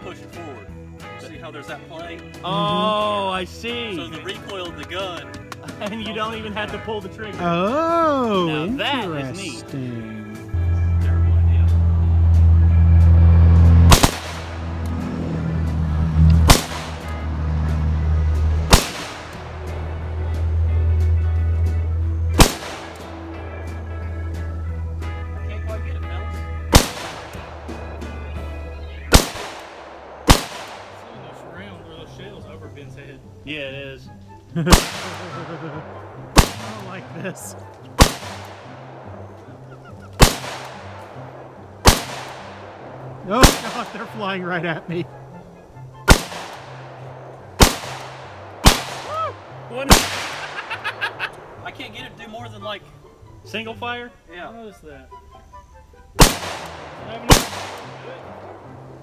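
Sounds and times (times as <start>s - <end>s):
background music with bass: 0.0s - 59.0s
rifle shots with echo: 13.9s - 14.8s, 16.4s - 17.1s, 18.7s - 19.4s, 22.4s - 23.2s, 26.7s - 28.2s, 29.1s - 31.4s, 34.7s - 37.2s, 38.0s - 39.2s, 40.2s - 44.2s, 46.0s - 49.2s, 49.9s - 51.6s, 56.2s - 58.8s.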